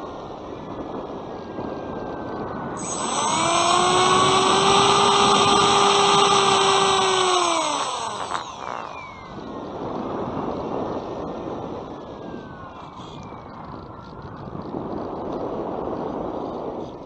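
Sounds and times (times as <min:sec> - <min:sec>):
electric motor and propeller whining: 0:00.0 - 0:13.6
wind rushing over microphone: 0:00.0 - 0:17.0.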